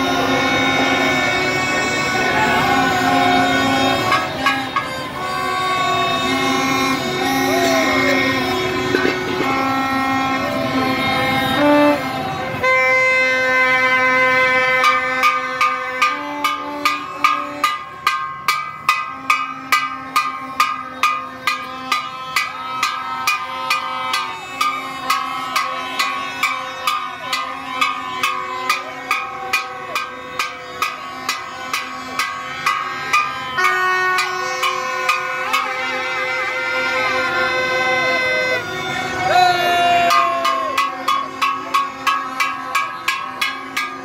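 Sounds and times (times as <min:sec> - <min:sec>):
steady drum beat: 0:00.0 - 0:37.1, 0:38.5 - 0:44.0
held melody: 0:00.0 - 0:44.0.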